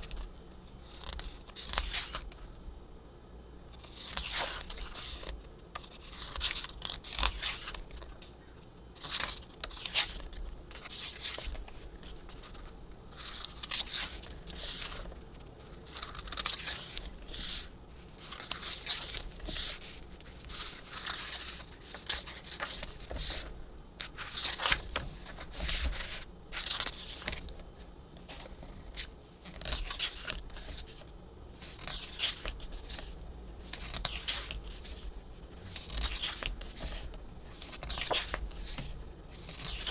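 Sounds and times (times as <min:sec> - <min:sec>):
book pages turning: 0:00.0 - 0:02.4, 0:03.7 - 0:08.3, 0:09.0 - 0:39.9
paper rustling: 0:09.0 - 0:39.9.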